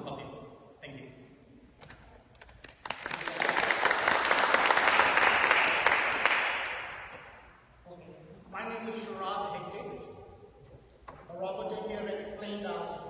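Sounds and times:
audience applauding: 2.6 - 7.1.

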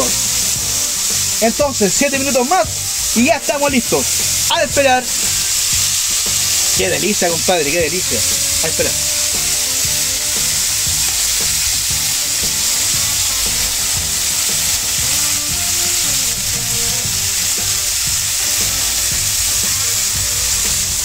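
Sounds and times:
background music: 0.0 - 21.0
steak sizzling on a griddle: 0.0 - 21.0.

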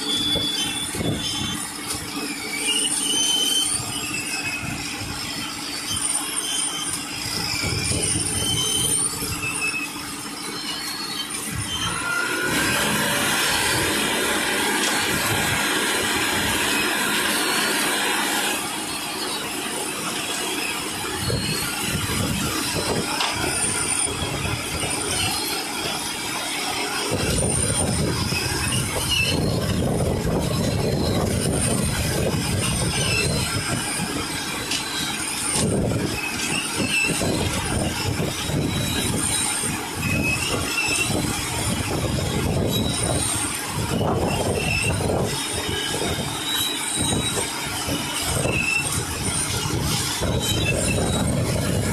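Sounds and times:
concrete mixer truck running: 0.0 - 51.9
heavy low rumble: 27.1 - 34.7.

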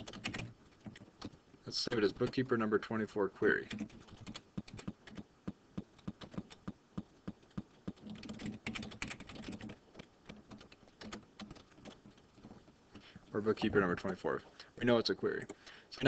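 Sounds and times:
typing on computer keyboard: 0.0 - 1.4, 3.7 - 5.3, 5.9 - 6.7, 7.5 - 12.6.

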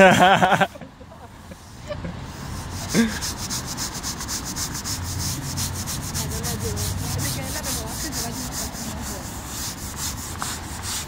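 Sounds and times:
mop scrubbing wet tiles: 2.4 - 11.0.

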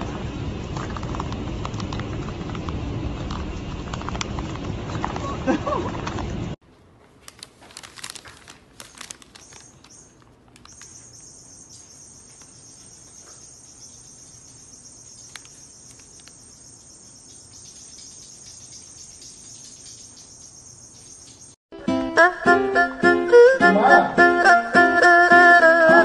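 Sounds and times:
soft clicks and rustles: 7.0 - 11.2, 15.2 - 16.4.

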